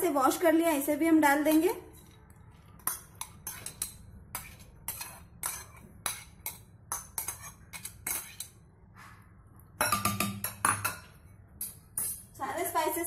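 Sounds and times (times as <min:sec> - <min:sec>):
spoon clinking against glass bowl: 0:09.8 - 0:12.2.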